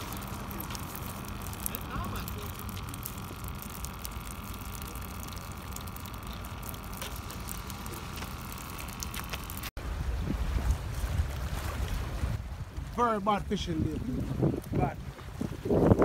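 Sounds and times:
fish flapping on concrete: 0.0s - 9.7s
steady hum: 0.0s - 16.0s
wind buffeting microphone: 9.8s - 16.0s.

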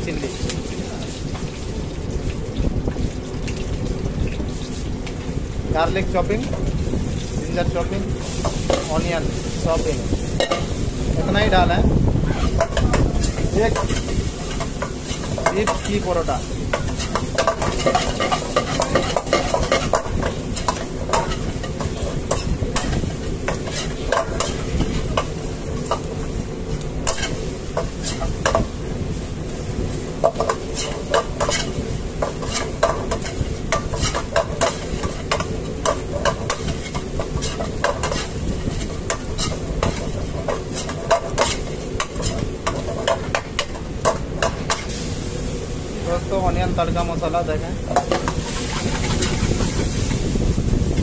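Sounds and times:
frying sizzle: 0.0s - 51.0s
ladle scraping metal pan: 12.2s - 26.1s, 30.2s - 45.0s, 48.0s - 49.9s.

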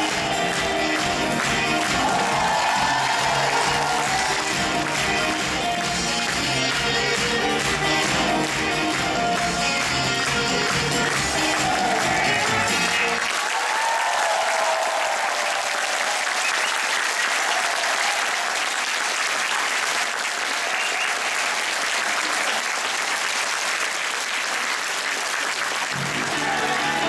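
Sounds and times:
band playing guitar-led music: 0.0s - 13.2s, 25.9s - 27.0s
audience applauding: 0.0s - 27.0s.

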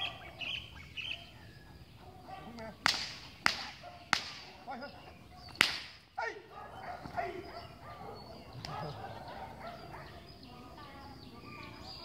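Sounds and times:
whip cracking: 2.5s - 4.6s, 5.5s - 6.2s.

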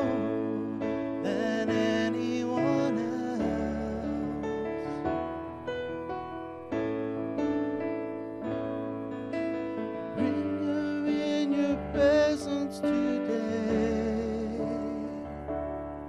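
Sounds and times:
person singing with vibrato: 0.0s - 5.1s, 10.1s - 15.4s
slow piano song: 0.0s - 16.0s.

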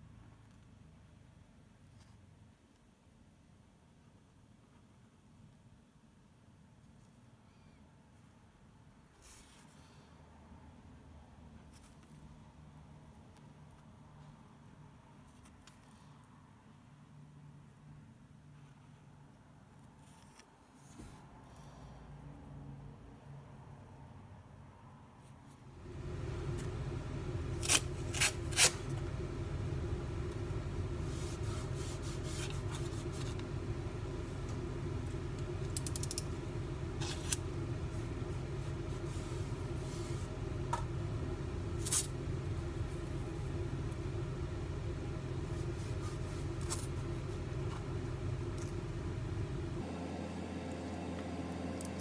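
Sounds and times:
low room rumble: 21.2s - 52.0s
masking tape scrapes: 27.5s - 29.0s.

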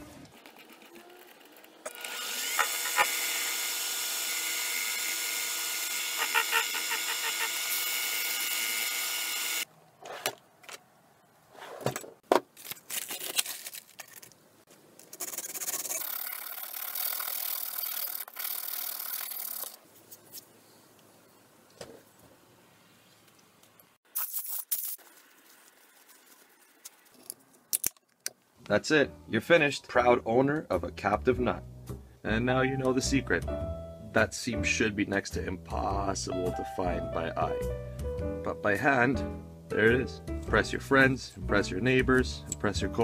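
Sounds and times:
metal lathe motor whine: 1.9s - 9.6s.

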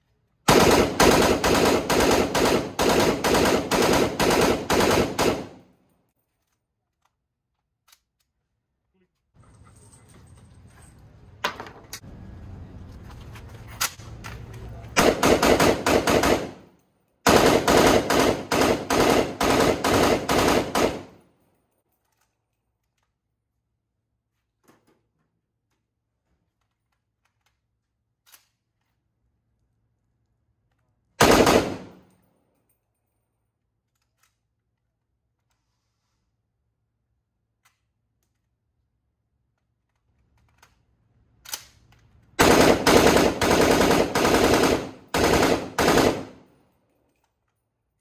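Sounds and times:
rifle firing automatic bursts: 0.5s - 5.7s, 15.0s - 16.7s, 17.3s - 21.2s, 31.2s - 32.0s, 42.4s - 46.5s.

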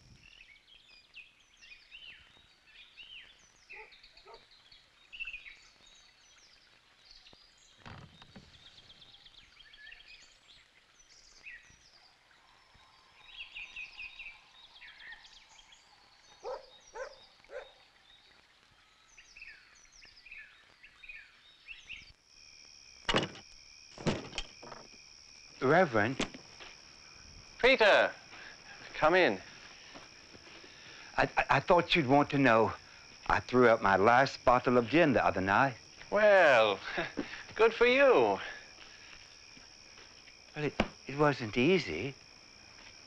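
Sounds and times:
cricket trill: 10.9s - 43.0s
birds chirping and singing: 13.2s - 22.1s
faint thuds: 24.0s - 24.9s, 40.7s - 41.1s.

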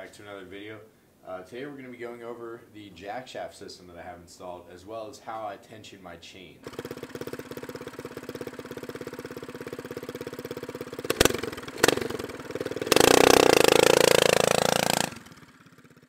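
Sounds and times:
small engine puttering and revving: 6.6s - 16.0s
sharp clicks: 11.1s - 12.0s.

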